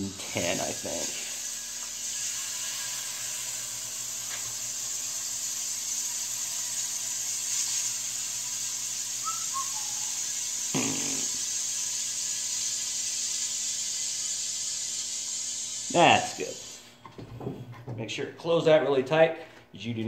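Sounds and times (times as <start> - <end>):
compressed air hissing: 0.0 - 16.9
short falling whistle: 9.2 - 10.3.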